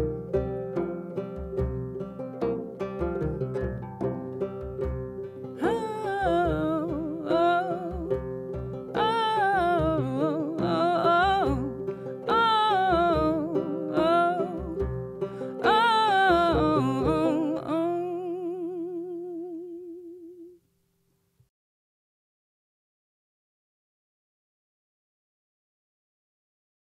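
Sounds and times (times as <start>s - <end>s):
frame drum beat: 0.0s - 11.9s
plucked banjo: 0.0s - 20.5s
woman singing wordlessly: 5.6s - 20.6s.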